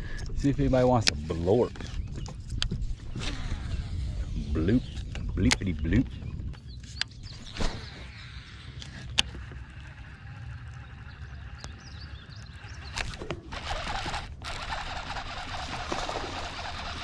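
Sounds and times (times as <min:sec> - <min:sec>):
sharp clicks: 0:08.7 - 0:17.0.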